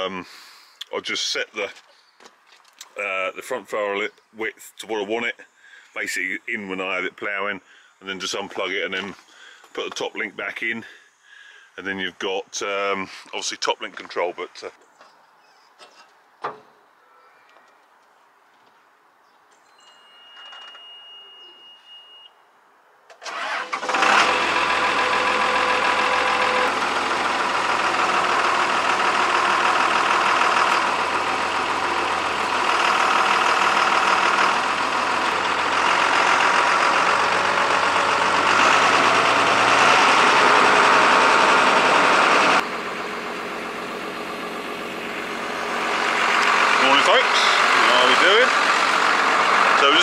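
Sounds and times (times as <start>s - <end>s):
diesel tractor engine running: 23.2s - 50.0s.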